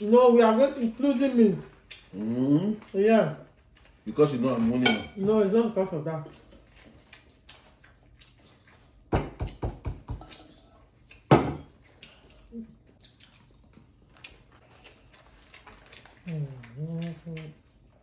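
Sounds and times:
cutlery clinking on plates: 4.7 - 5.2, 10.1 - 10.6.

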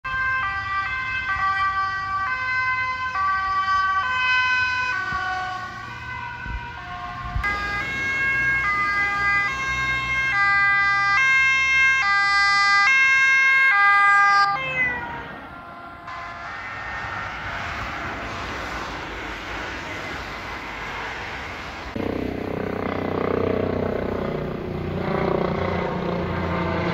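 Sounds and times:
police car two-tone siren: 0.1 - 18.8.

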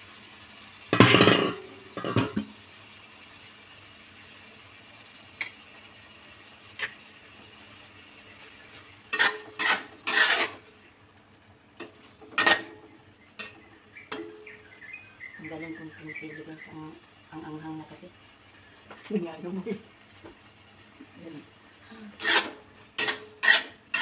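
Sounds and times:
metal spatula scraping wok: 1.0 - 2.5, 8.4 - 10.8, 11.8 - 14.5, 22.2 - 24.0.

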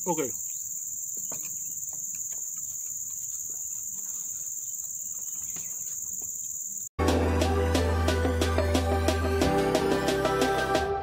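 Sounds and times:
insect chorus shrilling: 0.0 - 6.9
music with steady beat: 7.0 - 11.0.

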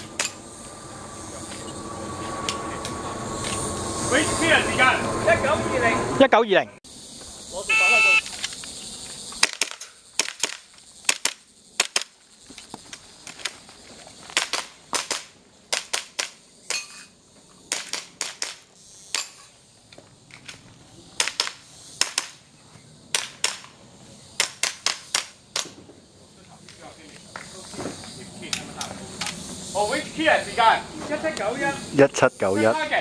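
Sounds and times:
airsoft pistol shots: 21.2 - 22.4.

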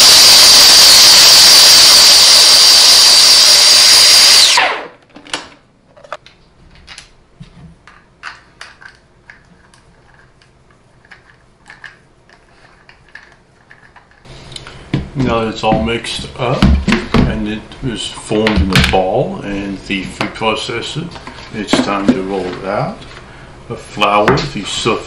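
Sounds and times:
food processor whining: 0.0 - 5.0.

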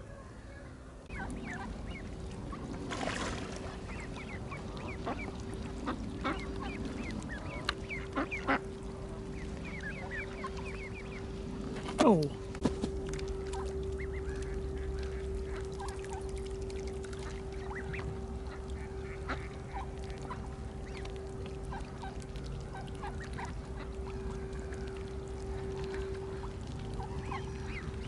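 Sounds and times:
steady low hum: 0.0 - 28.0
ducks quacking: 1.1 - 11.4, 17.6 - 21.1.

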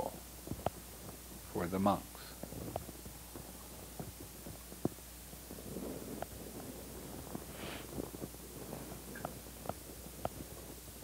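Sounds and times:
soft hiss: 0.0 - 11.0
steady low hum: 0.0 - 11.0.

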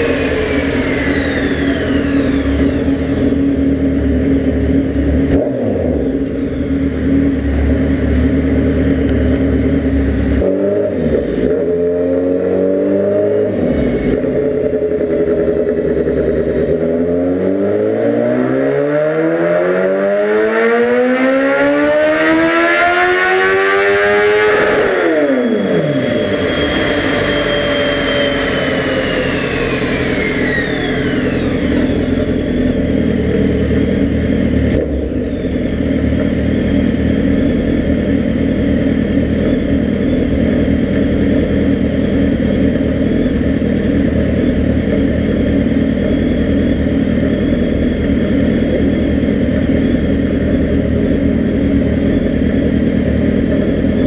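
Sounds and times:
dyno roller whine: 0.0 - 54.0
motorcycle engine revving: 0.0 - 54.0.

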